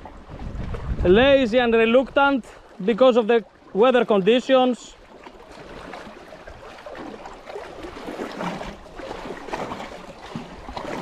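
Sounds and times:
wind noise on microphone: 0.0 - 2.4
sea water washing on rocks: 0.0 - 11.0.

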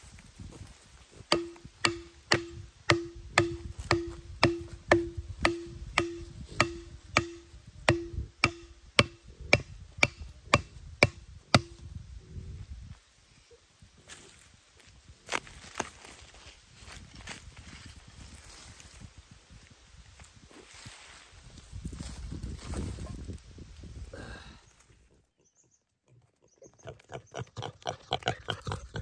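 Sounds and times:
digging tool chopping into soil: 1.3 - 11.8.

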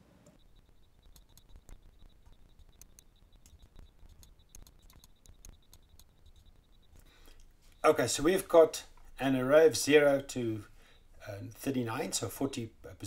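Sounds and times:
computer mouse clicking: 0.2 - 7.8.

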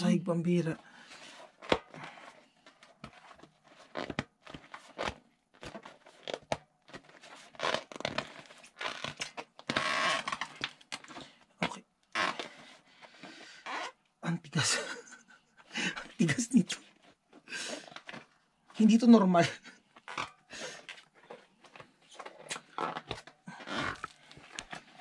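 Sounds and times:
tyre rubber scraping on rim: 22.2 - 25.0.

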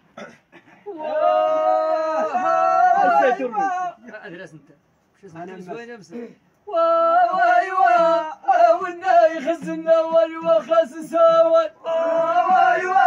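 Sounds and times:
men chanting in unison: 1.0 - 4.0, 6.7 - 13.0.

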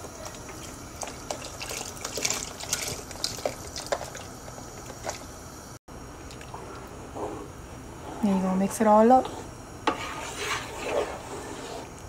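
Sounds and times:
liquid splashing: 0.2 - 4.3.

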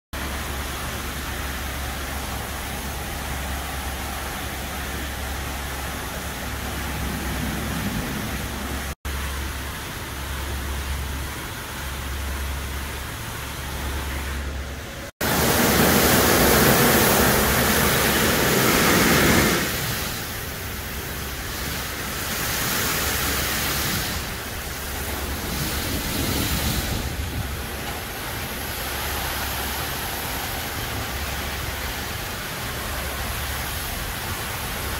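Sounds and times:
water spray hissing: 15.2 - 34.9.

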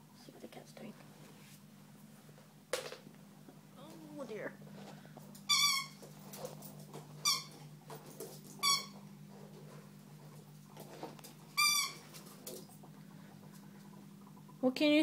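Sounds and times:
steady low hum: 0.0 - 15.0
squeaky toy squeaking: 5.5 - 6.0, 11.6 - 12.0.

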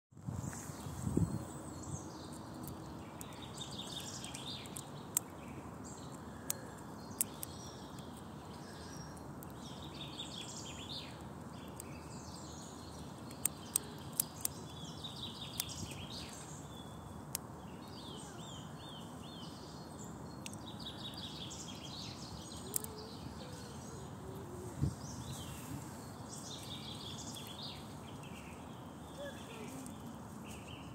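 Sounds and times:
steady outdoor hiss: 0.2 - 30.9
small birds chirping: 0.3 - 30.9
squirrel cracking nut shells: 2.3 - 5.4, 6.0 - 8.3, 12.9 - 14.8, 15.4 - 16.2, 22.6 - 23.0.

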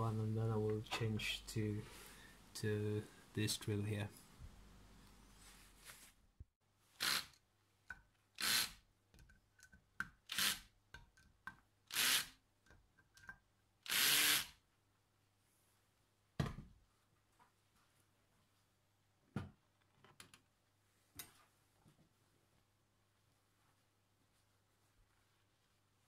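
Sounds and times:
cordless drill drilling metal: 7.0 - 7.4, 8.4 - 8.8, 10.3 - 10.7, 11.9 - 12.3, 13.8 - 14.6.

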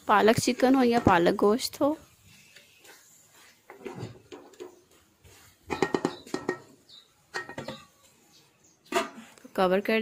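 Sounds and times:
wooden spoon scraping pan: 0.3 - 6.8
spoon knocking on pan: 5.7 - 6.7.

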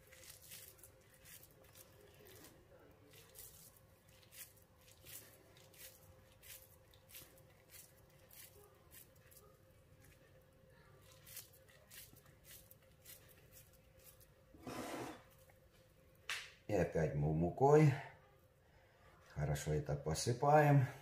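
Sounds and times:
hands rolling dough in flour: 0.0 - 16.4.

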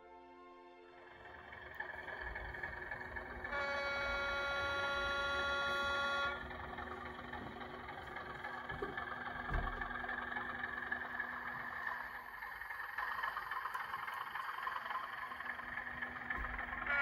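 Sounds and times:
low diesel engine sound: 0.9 - 17.0
model train horn blast: 2.2 - 7.9, 15.6 - 17.0.

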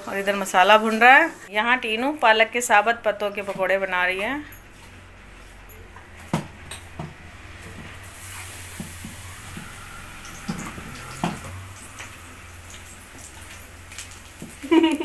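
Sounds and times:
oil sizzling: 3.2 - 15.0.

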